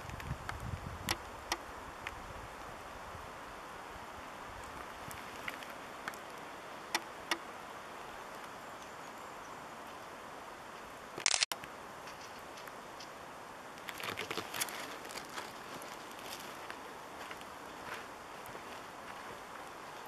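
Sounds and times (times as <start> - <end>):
faint steady hiss: 0.0 - 20.0
footsteps on dirt path: 13.9 - 20.0.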